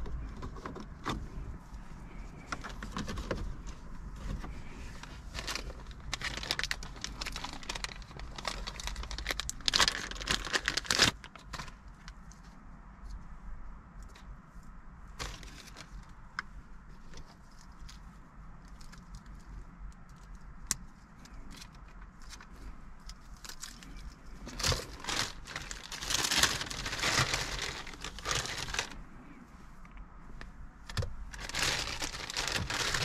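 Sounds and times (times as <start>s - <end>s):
cables clicking and rustling: 0.0s - 13.3s, 15.1s - 29.0s, 29.8s - 33.0s
plastic bag crinkling: 4.6s - 11.8s, 23.4s - 29.0s, 30.9s - 33.0s.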